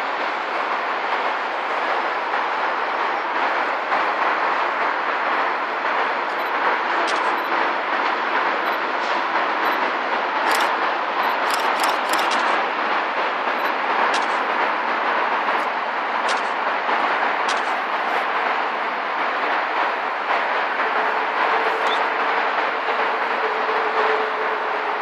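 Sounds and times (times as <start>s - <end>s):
distant train passing: 0.0s - 25.0s
traffic noise: 0.0s - 25.0s
sharp clicks and rattles: 6.0s - 8.9s, 9.6s - 12.7s, 13.4s - 14.8s, 15.4s - 16.7s, 17.4s - 18.1s.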